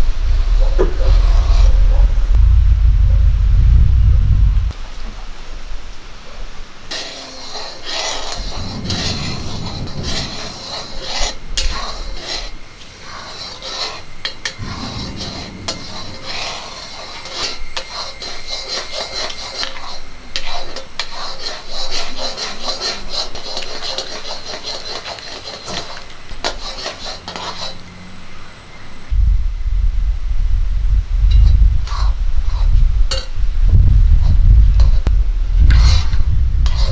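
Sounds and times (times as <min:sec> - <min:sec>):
boiling syrup hissing: 0:06.7 - 0:29.1
spatula scraping a cast-iron pan: 0:06.9 - 0:29.1, 0:31.4 - 0:33.4, 0:34.2 - 0:36.9.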